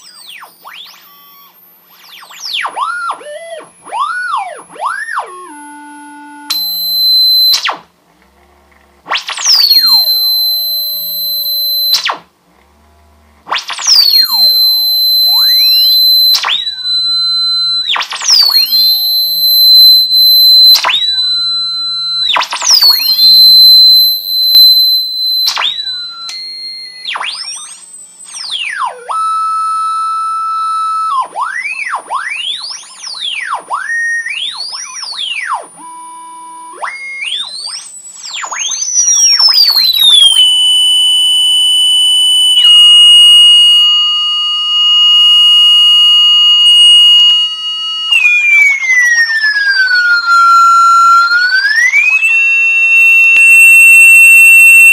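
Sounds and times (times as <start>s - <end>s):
high-pitched electronic tone: 9.1s - 12.2s, 13.4s - 30.5s, 41.4s - 54.9s.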